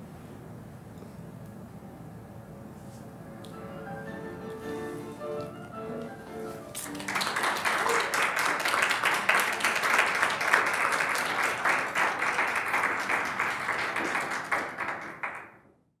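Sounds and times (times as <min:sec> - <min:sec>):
audience clapping: 0:06.7 - 0:15.7.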